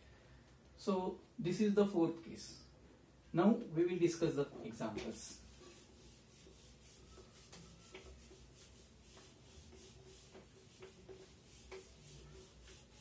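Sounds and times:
duster wiping whiteboard: 0:04.6 - 0:13.0.

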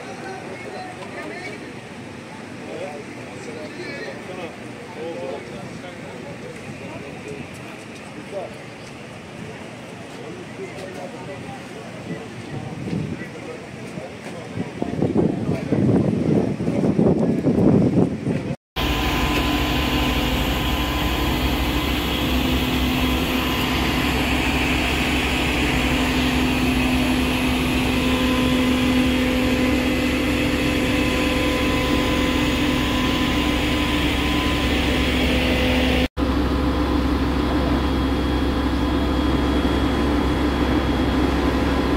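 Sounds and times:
diesel engine running: 0:18.8 - 0:41.9.

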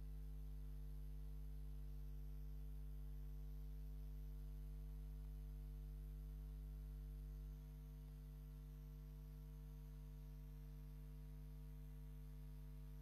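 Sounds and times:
faint mains hum: 0:00.0 - 0:13.0.

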